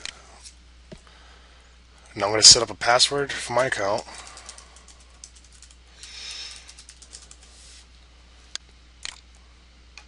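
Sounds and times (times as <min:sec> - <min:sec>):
keyboard typing: 0:03.6 - 0:07.5.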